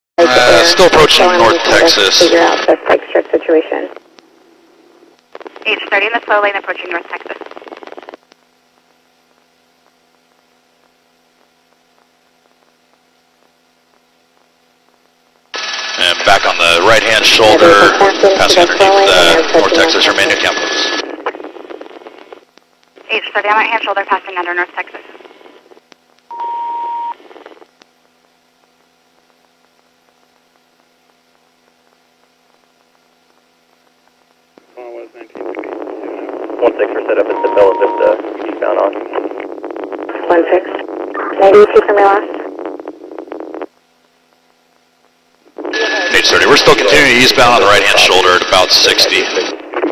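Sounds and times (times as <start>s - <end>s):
radio noise burst: 0.2s - 4.0s, 5.3s - 8.9s, 14.2s - 28.0s, 32.6s - 49.9s
faint electrical hum and hiss: 0.2s - 49.9s
radio click: 5.1s - 15.6s, 35.3s - 49.9s.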